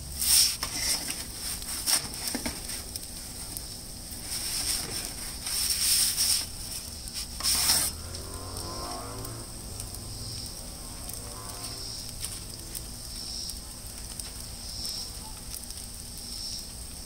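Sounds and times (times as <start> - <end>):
gas burner hissing: 0.0 - 17.0
metal pizza peel scraping on stone: 4.2 - 8.6.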